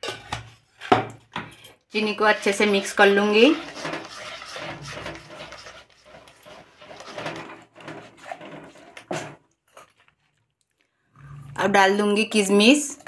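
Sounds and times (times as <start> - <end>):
spatula scraping a pan: 1.5 - 10.0.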